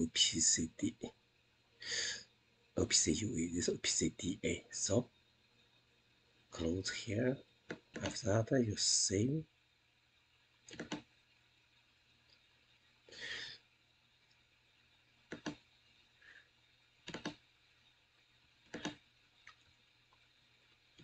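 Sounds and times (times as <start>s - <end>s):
computer mouse clicks: 7.7s - 8.2s, 10.7s - 11.1s, 15.3s - 15.6s, 17.0s - 17.4s, 18.6s - 19.6s.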